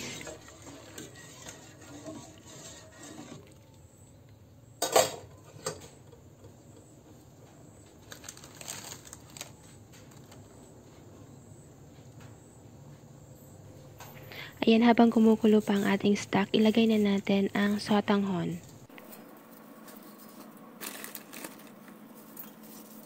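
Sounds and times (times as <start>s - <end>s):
metal ladle stirring in pot: 0.0s - 3.6s.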